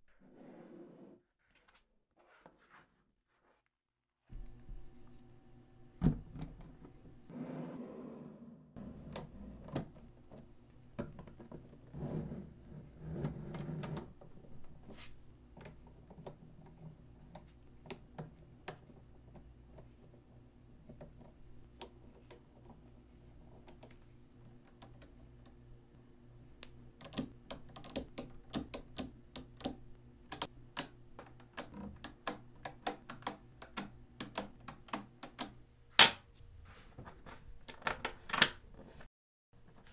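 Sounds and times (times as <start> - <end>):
soft rubbing sounds: 0.1 - 3.7, 14.8 - 15.3.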